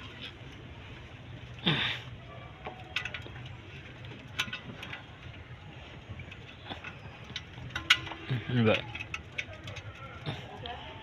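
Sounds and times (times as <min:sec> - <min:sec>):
tools and parts clicking: 0:02.6 - 0:05.4, 0:06.2 - 0:10.9.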